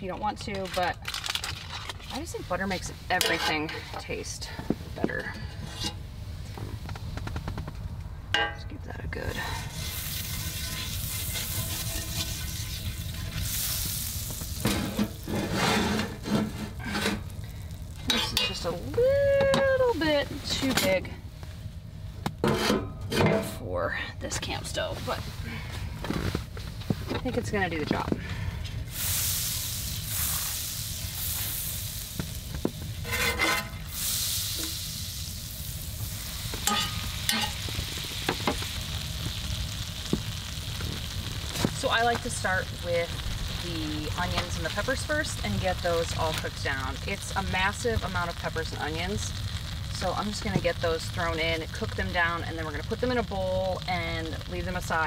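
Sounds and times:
spatula working in a pan: 0.4s - 4.3s, 9.3s - 18.8s, 28.9s - 55.0s
spatula scraping a pan: 1.7s - 4.2s, 9.3s - 14.0s, 14.6s - 17.3s, 18.0s - 18.7s, 22.4s - 23.3s, 33.0s - 34.2s, 36.6s - 37.8s
butter sizzling in a skillet: 9.3s - 21.0s, 28.8s - 55.0s.

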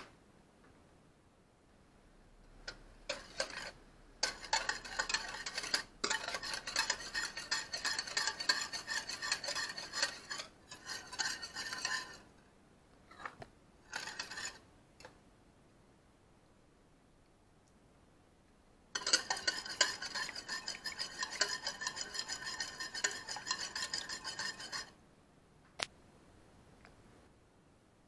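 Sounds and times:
whisk clinking against bowl: 2.7s - 12.2s, 13.9s - 14.6s, 19.0s - 24.9s.

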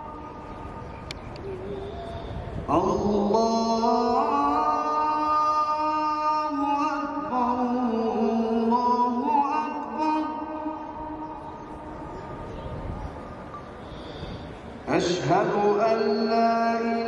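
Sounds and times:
person chanting: 2.7s - 12.4s, 14.8s - 17.0s.

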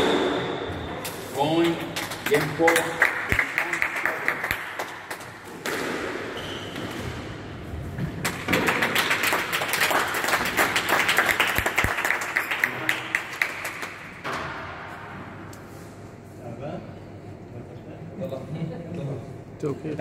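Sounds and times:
audience applause: 2.3s - 5.2s, 8.2s - 14.1s.

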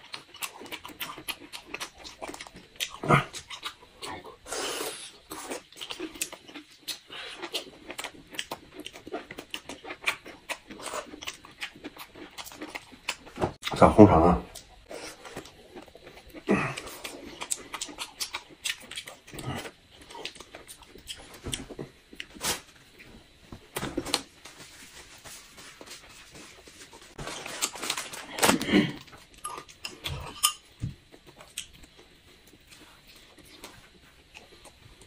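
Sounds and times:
chewing and lip smacks: 14.5s - 22.3s.

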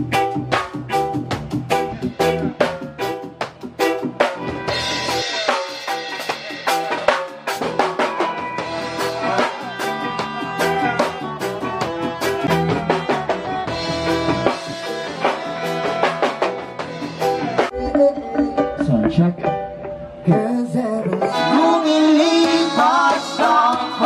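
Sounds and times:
band playing: 0.0s - 24.0s
drum kit beat with cymbals: 0.0s - 24.0s
saxophone: 8.0s - 18.7s.

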